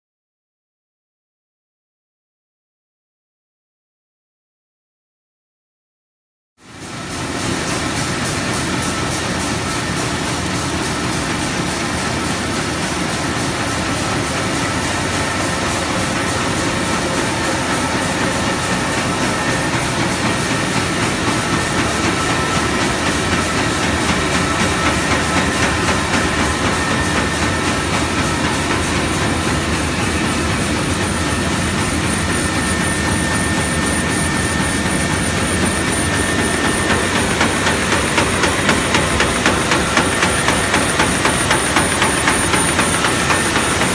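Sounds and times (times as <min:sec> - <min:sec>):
rapid mechanical clatter: 0:06.9 - 0:43.9
paper running over steel rollers: 0:07.0 - 0:32.1, 0:36.4 - 0:43.9.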